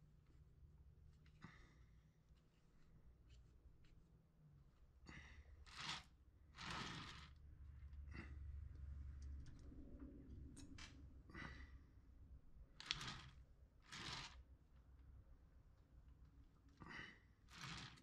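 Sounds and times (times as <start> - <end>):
person breathing: 11.3 - 11.9.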